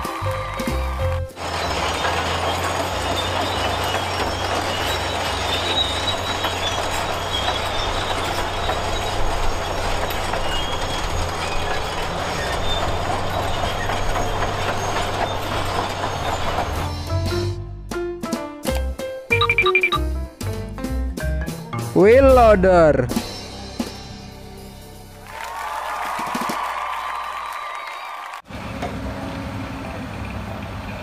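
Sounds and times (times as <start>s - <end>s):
diesel engine running: 0.2s - 17.3s
steel tracks clanking: 0.8s - 17.5s
tracks squealing: 1.4s - 17.3s.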